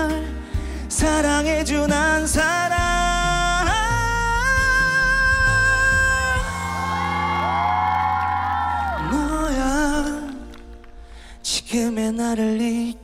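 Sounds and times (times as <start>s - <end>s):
man singing a ballad: 0.0s - 7.2s, 8.8s - 13.0s
musical backing: 0.0s - 13.0s
audience cheering and whooping: 6.2s - 10.5s.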